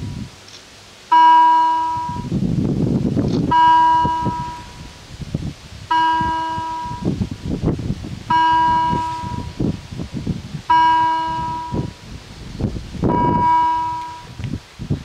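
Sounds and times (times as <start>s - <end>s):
level crossing warning bell: 1.1s - 2.3s, 3.5s - 4.8s, 5.9s - 7.2s, 8.3s - 9.6s, 10.7s - 12.0s, 13.1s - 14.3s.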